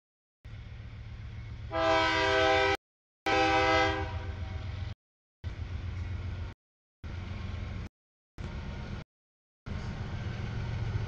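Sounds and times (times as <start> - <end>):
locomotive engine rumble: 0.5 - 2.7, 3.3 - 9.0, 9.7 - 11.0
locomotive air horn: 1.7 - 4.7.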